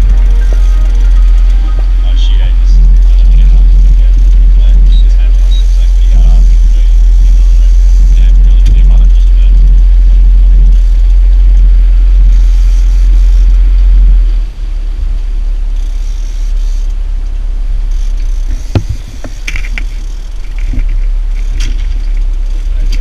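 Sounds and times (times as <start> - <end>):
boat engine rumble: 0.0 - 23.0
sharp knock: 18.6 - 19.4.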